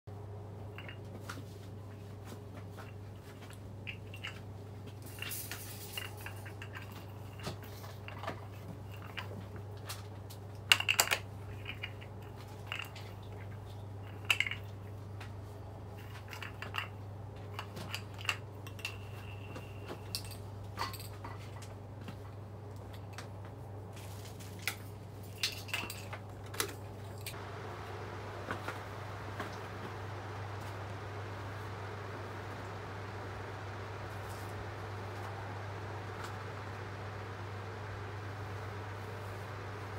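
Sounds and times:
steady low hum: 0.1 - 39.9
soft hiss: 27.3 - 39.9.

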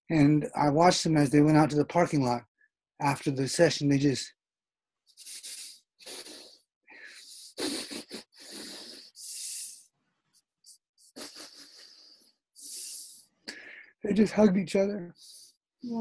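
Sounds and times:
man gasping and sniffing: 5.2 - 9.9, 11.0 - 14.0.

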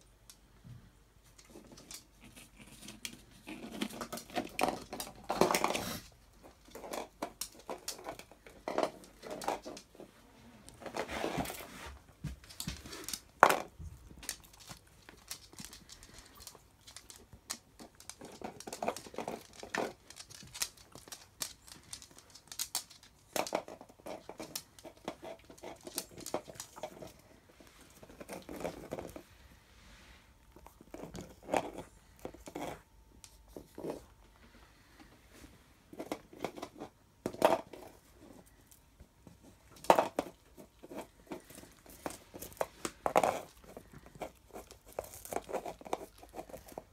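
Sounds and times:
dog chewing crunchy treat: 12.3 - 29.3, 39.7 - 46.9.

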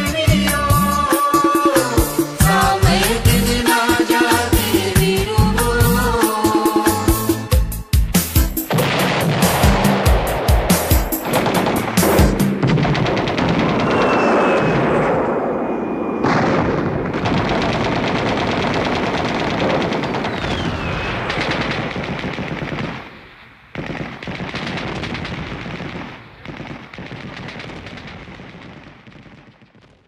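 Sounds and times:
machine-gun fire: 8.6 - 30.0.

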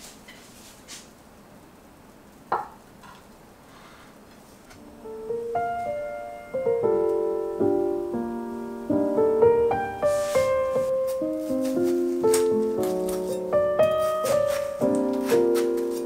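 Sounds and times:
gentle piano music: 4.8 - 16.0.

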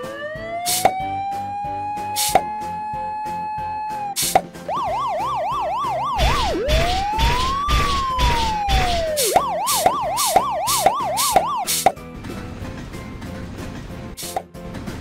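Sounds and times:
police siren yelping and wailing: 0.0 - 11.8
steady thumping beat: 6.1 - 11.6.

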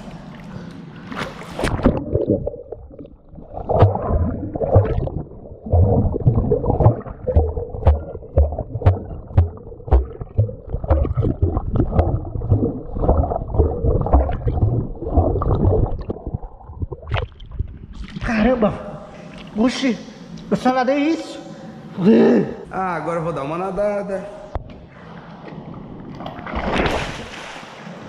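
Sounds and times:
underwater sloshing and gurgling: 0.0 - 18.3
dull low thumps: 2.0 - 18.0.

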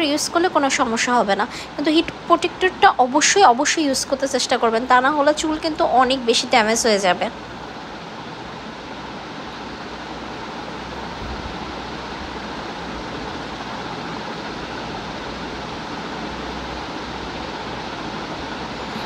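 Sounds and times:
steady rushing noise: 0.0 - 19.0.

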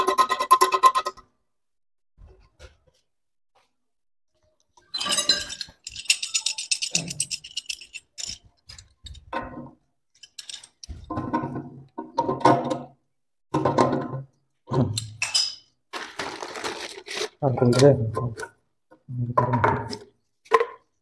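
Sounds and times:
metal pipe coupling clinking: 4.9 - 9.4, 10.2 - 11.0.

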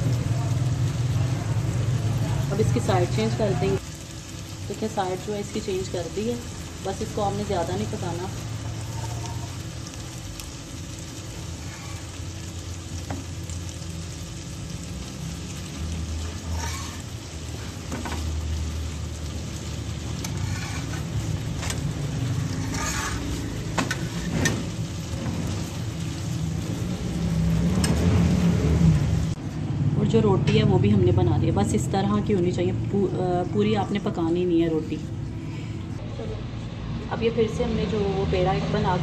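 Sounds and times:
dough sizzling on griddle: 0.0 - 29.4
spatula scraping griddle: 8.6 - 9.6, 11.3 - 12.3, 16.2 - 18.3, 20.0 - 25.9.

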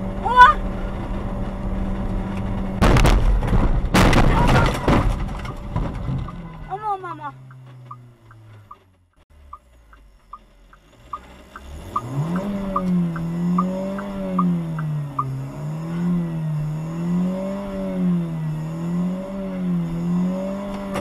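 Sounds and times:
car engine roaring at high revs: 0.0 - 4.1, 5.2 - 21.0
light ticking: 7.4 - 15.3.

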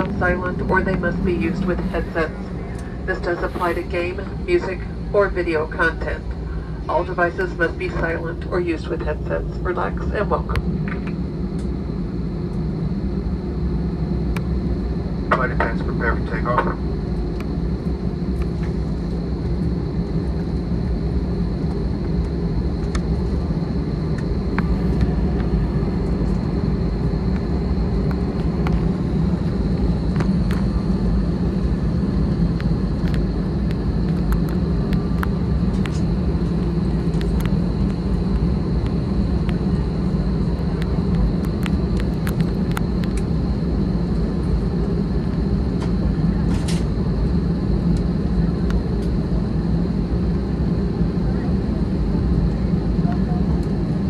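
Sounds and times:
high whine: 0.0 - 54.0
jet cabin engine noise: 0.0 - 54.0.

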